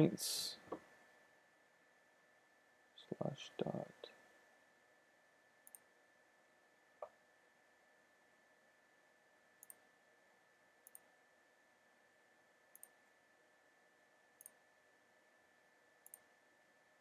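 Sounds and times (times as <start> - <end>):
computer mouse clicks: 5.6 - 5.9, 9.6 - 9.8, 10.8 - 11.1, 12.7 - 13.0, 14.4 - 14.6, 16.0 - 16.3.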